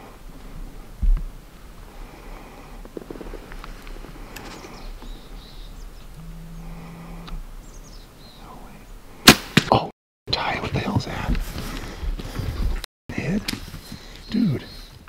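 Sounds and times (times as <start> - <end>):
faint bird chirps: 4.4 - 9.0.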